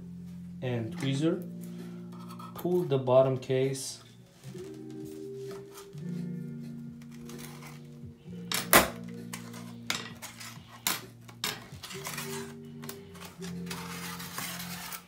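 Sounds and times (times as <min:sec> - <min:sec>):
background music: 0:00.0 - 0:15.0
rasping scrape: 0:02.1 - 0:02.7, 0:11.6 - 0:15.0.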